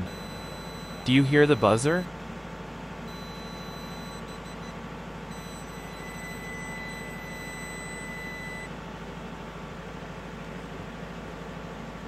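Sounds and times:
low hum and hiss: 0:00.0 - 0:08.7.

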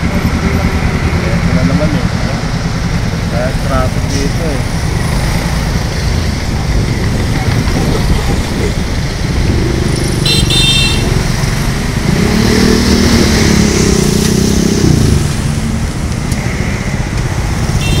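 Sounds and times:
engine and road rumble: 0:00.0 - 0:18.0.

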